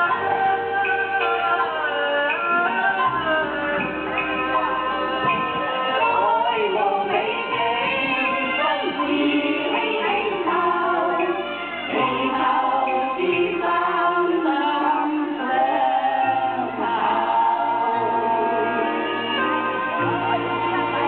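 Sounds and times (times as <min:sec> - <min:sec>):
amplified backing music with bass: 0:00.0 - 0:21.0
group singing: 0:00.0 - 0:21.0.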